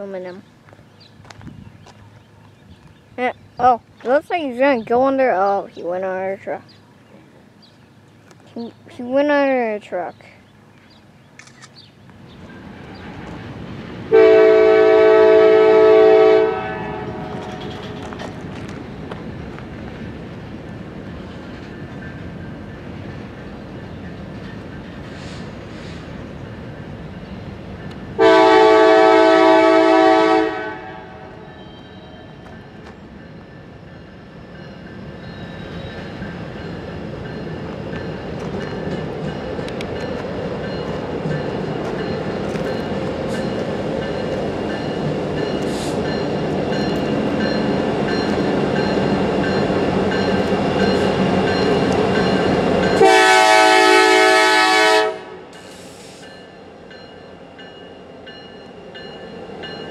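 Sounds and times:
freight train rumbling: 0:00.0 - 0:59.9
locomotive air horn: 0:14.1 - 0:17.4, 0:28.2 - 0:32.5, 0:53.0 - 0:56.0.

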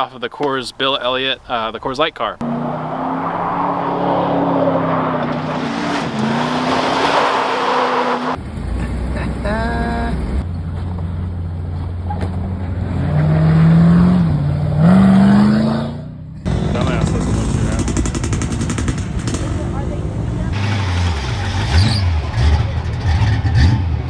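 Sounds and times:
road noise: 0:00.1 - 0:24.0
engine revving: 0:02.4 - 0:08.4, 0:12.7 - 0:24.0
car engine humming: 0:02.4 - 0:24.0.

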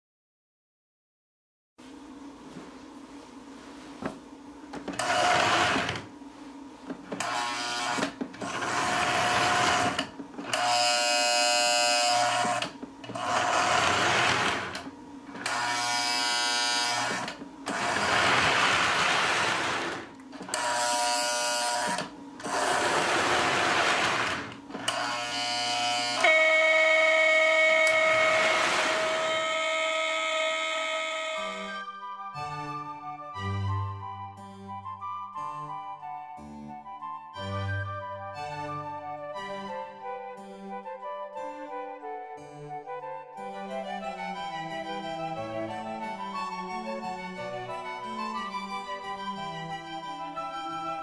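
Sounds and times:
faint electrical hum: 0:01.8 - 0:34.7
steady buzzing tones: 0:04.9 - 0:31.9
model train motor whirring: 0:13.2 - 0:14.8, 0:15.4 - 0:31.8.

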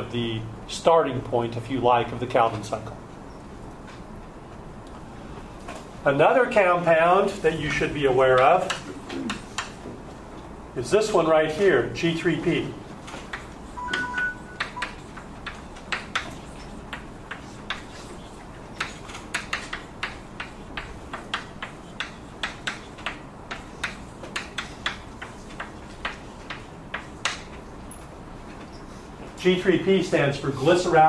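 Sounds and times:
writing on a board: 0:08.4 - 0:09.9, 0:13.1 - 0:27.6
two-note tone: 0:13.8 - 0:14.8.

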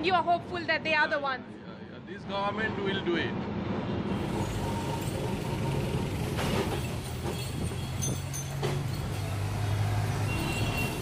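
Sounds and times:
street noise: 0:00.0 - 0:11.0
electric tram humming: 0:03.0 - 0:11.0
rattles and knocks: 0:06.3 - 0:09.3.

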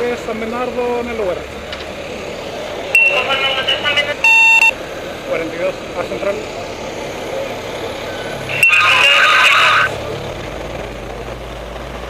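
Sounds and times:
low engine hum: 0:00.0 - 0:12.0
radio static crackling: 0:03.0 - 0:04.7, 0:08.3 - 0:09.9.

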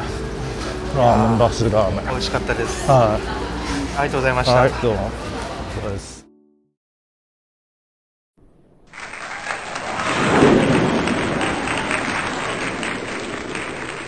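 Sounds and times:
crowd applause: 0:09.0 - 0:14.0.

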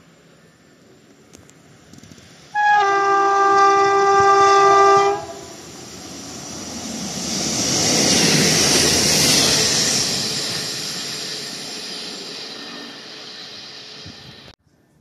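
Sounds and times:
train running noise: 0:00.0 - 0:14.6
train horn blast: 0:02.5 - 0:05.6.

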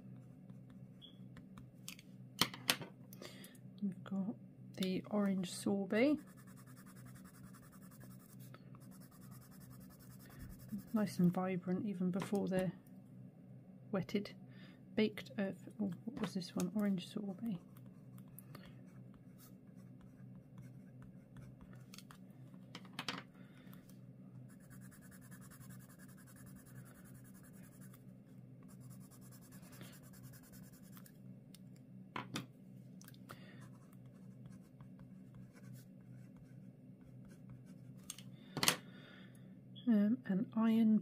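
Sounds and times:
low steady hum: 0:00.0 - 0:41.0
pencil scratching on paper: 0:06.2 - 0:11.2, 0:17.5 - 0:21.9, 0:24.5 - 0:28.0, 0:28.7 - 0:31.1.

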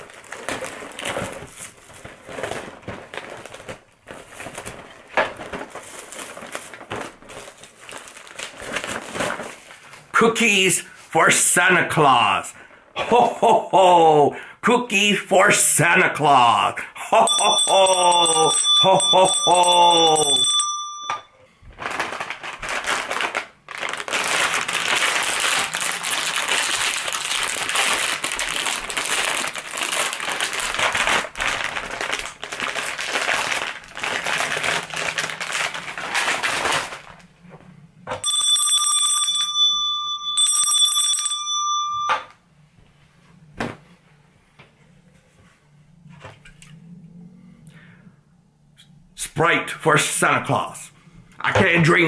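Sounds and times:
plastic packet crinkling: 0:00.0 - 0:10.1, 0:21.7 - 0:37.3
handbell ringing: 0:17.3 - 0:21.3, 0:38.3 - 0:42.2.

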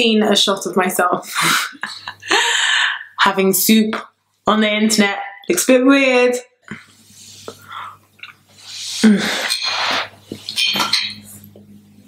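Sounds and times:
loud breathy sound: 0:02.2 - 0:03.1
slurping from a spoon: 0:08.6 - 0:10.5
spoon clinking against bowl: 0:10.5 - 0:11.4.

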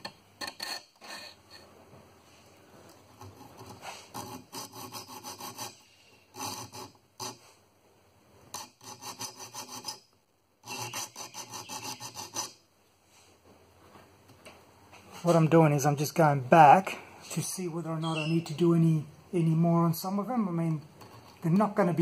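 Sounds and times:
saw file rasping on saw teeth: 0:03.2 - 0:07.4, 0:08.5 - 0:10.0, 0:10.6 - 0:12.6.

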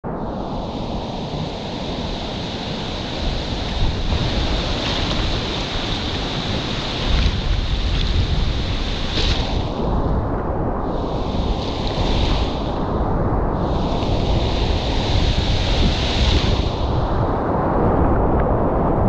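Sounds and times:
wind rumbling on microphone: 0:00.0 - 0:19.0
river water rushing: 0:00.4 - 0:09.9.

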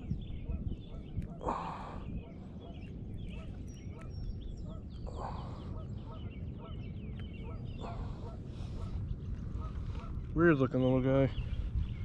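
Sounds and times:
wind on microphone: 0:00.0 - 0:12.0
waterfowl honking: 0:07.4 - 0:10.2.

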